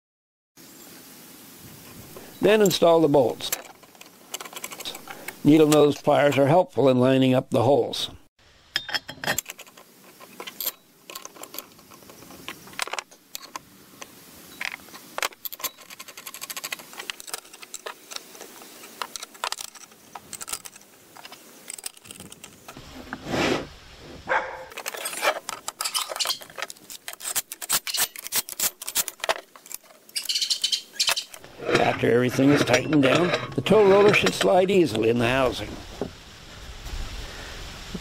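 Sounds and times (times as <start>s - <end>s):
steel bolts clinking: 8.7s - 13.6s, 14.6s - 18.0s, 24.7s - 34.6s.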